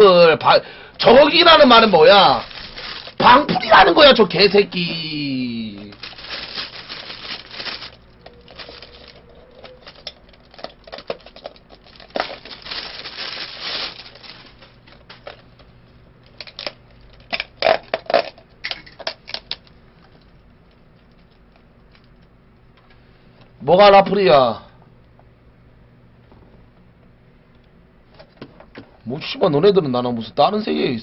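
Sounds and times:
food wrapper rustling: 0:01.0 - 0:04.9, 0:05.7 - 0:15.4.

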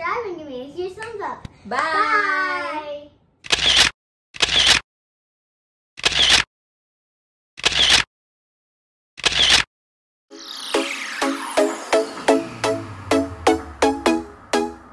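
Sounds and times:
camera shutter: 0:03.4 - 0:04.8, 0:06.0 - 0:06.5, 0:07.6 - 0:08.1, 0:09.2 - 0:09.7
electronic music: 0:10.3 - 0:14.9.

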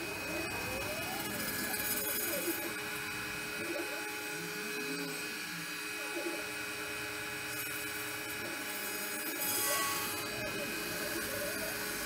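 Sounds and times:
motors sweeping in pitch: 0:00.0 - 0:05.7.

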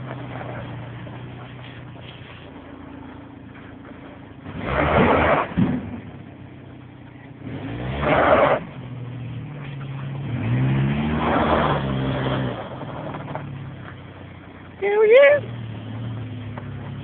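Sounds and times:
van engine revving: 0:00.0 - 0:17.0.

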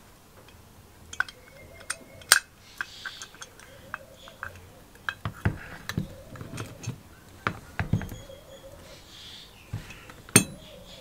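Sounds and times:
faint steady hum: 0:00.0 - 0:11.0
metal clicks and taps: 0:00.4 - 0:08.2, 0:09.8 - 0:10.6.

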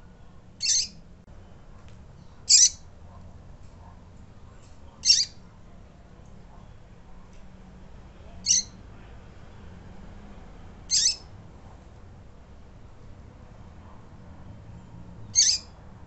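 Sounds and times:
high piping bird calls: 0:00.6 - 0:01.0, 0:02.5 - 0:02.8, 0:05.0 - 0:05.4, 0:08.5 - 0:08.8, 0:10.9 - 0:11.3, 0:15.4 - 0:15.7.

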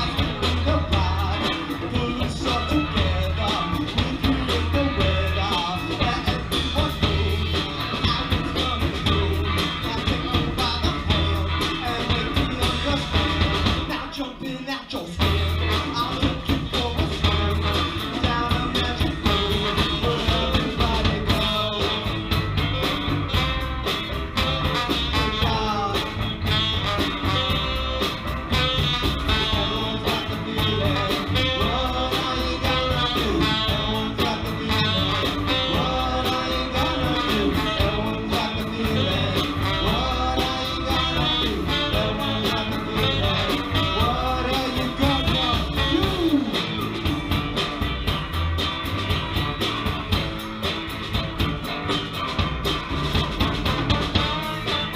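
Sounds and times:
saxophone: 0:00.0 - 0:14.0, 0:15.2 - 0:54.9
trombone: 0:00.0 - 0:14.0, 0:15.2 - 0:54.9
person singing: 0:00.0 - 0:22.4, 0:28.8 - 0:47.2
drums: 0:00.0 - 0:54.9
electric guitar: 0:00.0 - 0:54.9.

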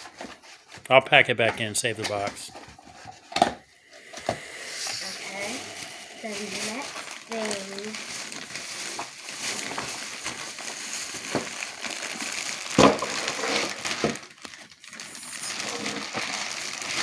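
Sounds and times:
plastic bag rustling: 0:04.4 - 0:17.0.

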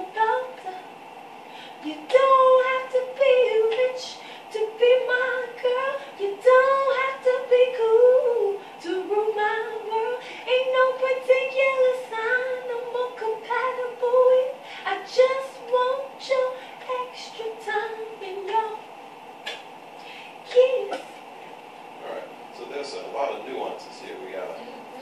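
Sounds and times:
woman singing unaccompanied: 0:00.0 - 0:00.9, 0:01.7 - 0:18.8, 0:20.4 - 0:21.1.

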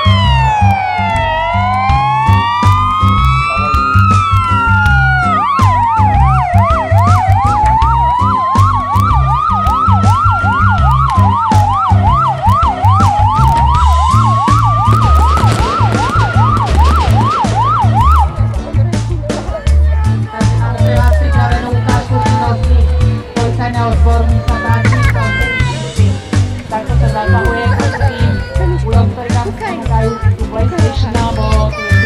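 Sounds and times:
siren wail: 0:00.0 - 0:18.7
siren yelp: 0:00.0 - 0:18.8.

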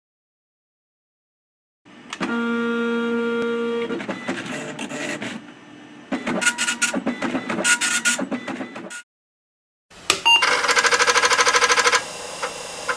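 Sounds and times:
dot-matrix printer printing: 0:02.2 - 0:05.5, 0:06.1 - 0:09.0, 0:10.3 - 0:12.9.

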